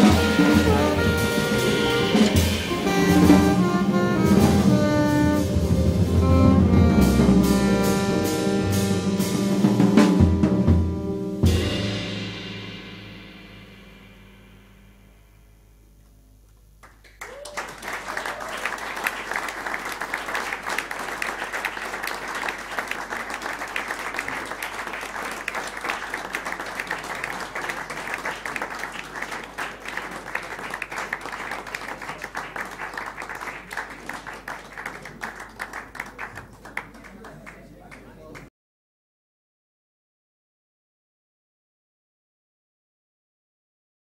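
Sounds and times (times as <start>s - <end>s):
band playing: 0.0s - 15.9s, 18.1s - 36.5s
audience applause: 16.8s - 38.5s.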